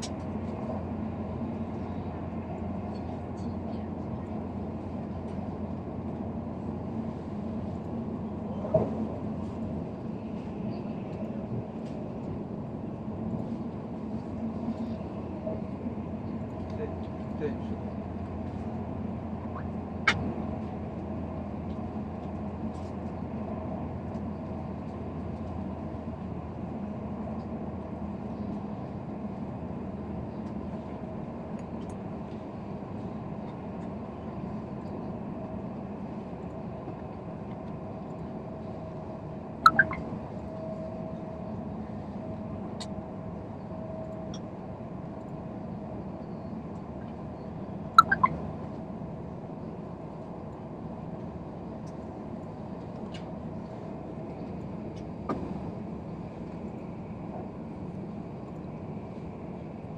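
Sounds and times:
train carriage hum and rumble: 0.0s - 59.9s
faint steady tone: 39.7s - 40.0s, 48.0s - 48.3s.

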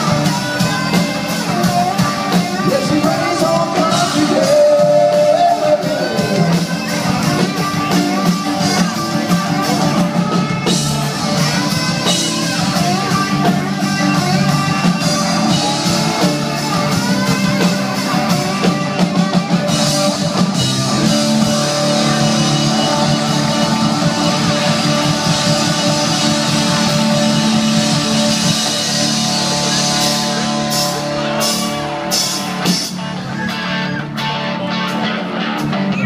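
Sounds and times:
drum kit: 0.0s - 36.0s
electric guitar: 0.0s - 36.0s
live rock band playing: 0.0s - 36.0s.

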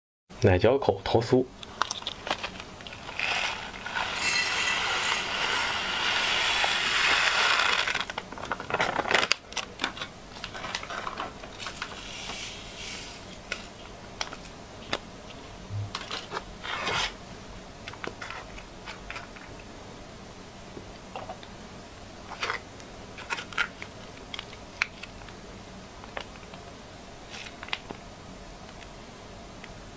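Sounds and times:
plastic bag rustling: 1.7s - 13.9s
grains poured into glass: 2.9s - 8.1s.

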